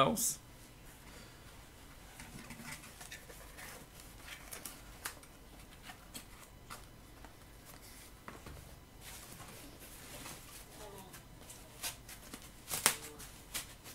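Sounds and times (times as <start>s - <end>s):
bubble wrap crinkling: 9.1s - 13.9s.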